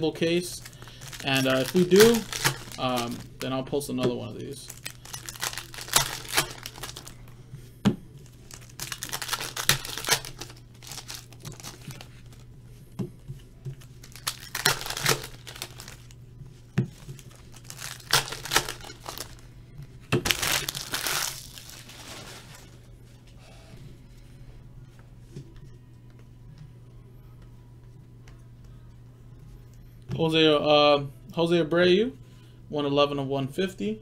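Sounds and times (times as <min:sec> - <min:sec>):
plastic wrapper tearing and crinkling: 0:00.4 - 0:03.5, 0:04.6 - 0:07.2, 0:08.2 - 0:12.5, 0:13.8 - 0:16.2, 0:16.9 - 0:19.4, 0:20.2 - 0:22.8.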